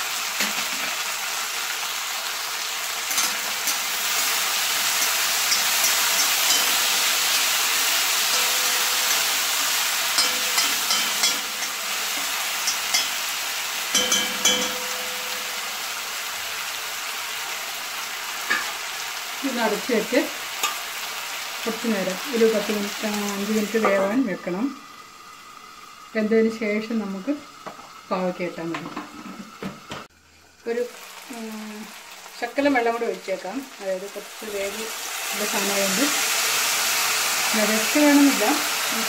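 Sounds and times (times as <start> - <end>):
seeds sizzling in oil: 0.0 - 39.0.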